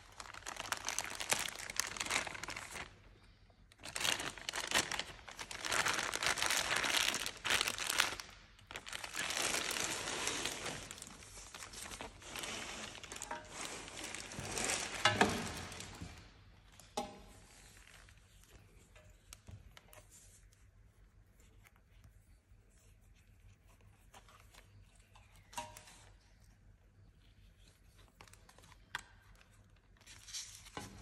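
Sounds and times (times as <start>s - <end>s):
plastic bag crinkling: 0.0s - 16.4s.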